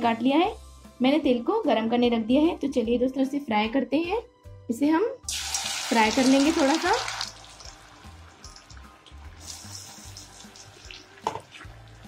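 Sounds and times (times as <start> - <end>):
soft background music: 0.0 - 12.0
potatoes sizzling in oil: 5.3 - 12.0.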